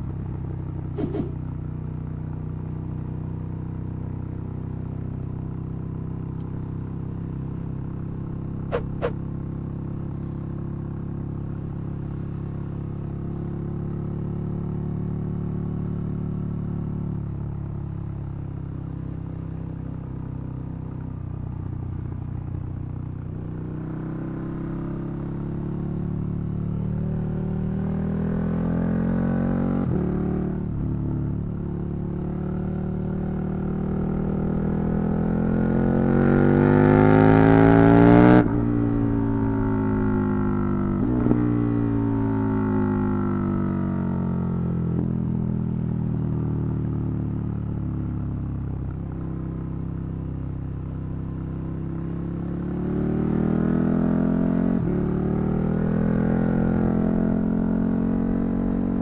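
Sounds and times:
motorcycle engine revving: 0.8s - 1.5s, 8.6s - 9.5s.

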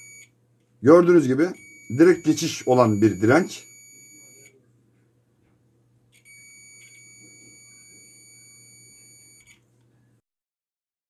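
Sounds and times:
multimeter continuity beep: 0.0s - 0.3s, 0.9s - 4.6s, 6.2s - 9.6s.

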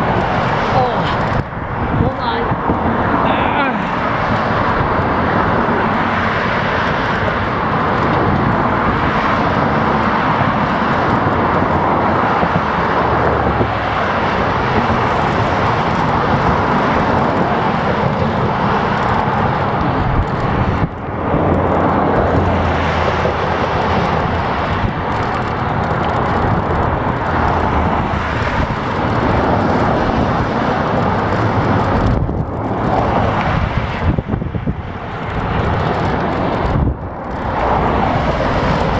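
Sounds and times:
passing traffic: 0.0s - 38.9s
road noise: 0.0s - 38.9s
wind rushing over microphone: 0.0s - 38.9s.

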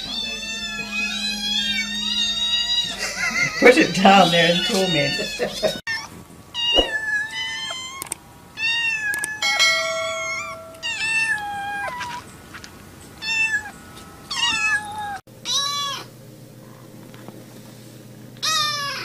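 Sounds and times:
kittens meowing: 0.0s - 12.3s, 13.1s - 16.8s, 18.4s - 19.0s.

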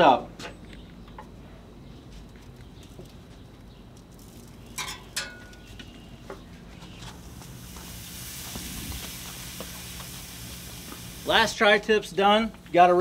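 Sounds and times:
meat sizzling on a grill: 7.0s - 12.1s.

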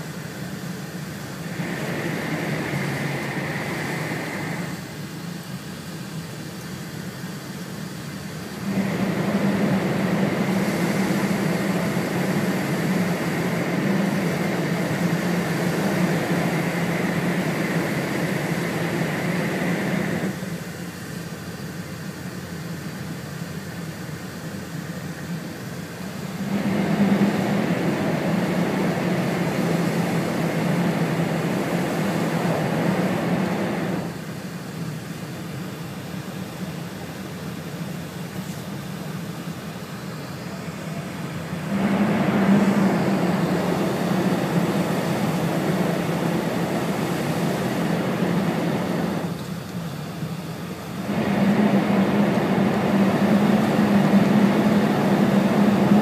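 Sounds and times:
train cabin rushing rumble: 0.8s - 4.9s, 8.6s - 20.5s, 26.2s - 34.2s, 41.5s - 49.6s, 50.9s - 56.0s.

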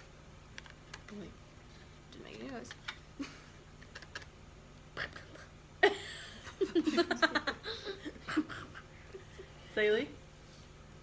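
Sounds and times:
girls giggling: 5.8s - 9.7s.

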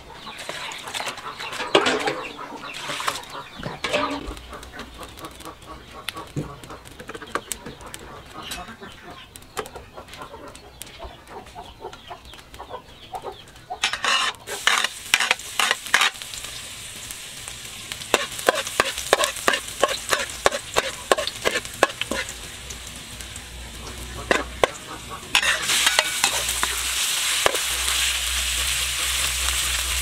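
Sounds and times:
metal spatula scraping wok: 0.3s - 4.3s, 13.8s - 16.6s, 18.1s - 22.6s, 23.6s - 30.0s
food sizzling in hot oil: 2.6s - 7.2s, 13.8s - 30.0s.

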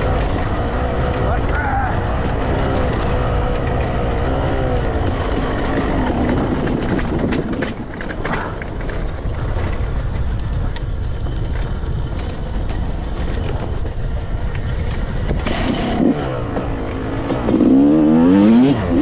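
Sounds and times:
dirt bike engine revving: 0.0s - 10.2s, 11.6s - 19.0s.

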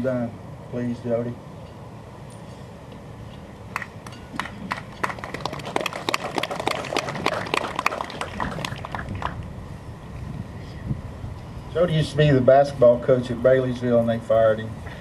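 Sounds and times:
small audience applauding: 3.8s - 9.4s.

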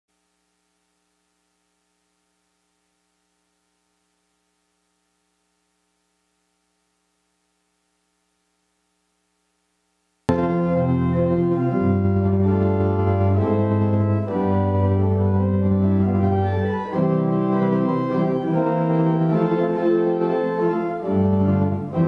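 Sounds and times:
faint electrical hum: 0.1s - 22.0s
organ playing: 10.3s - 22.0s.

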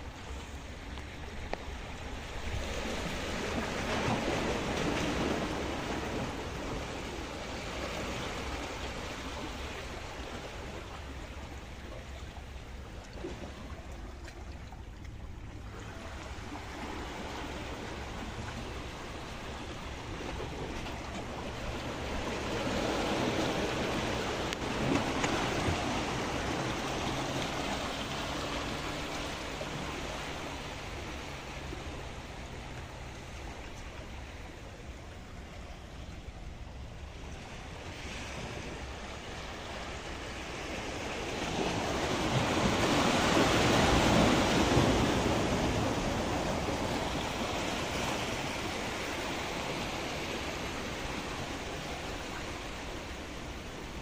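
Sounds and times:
sea waves washing against rocks: 0.0s - 54.0s.

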